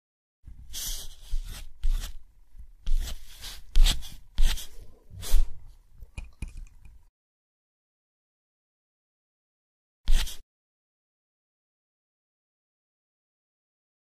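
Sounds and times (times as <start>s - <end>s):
scratchy strokes on paper: 0.6s - 2.2s, 2.8s - 5.6s, 10.1s - 10.4s.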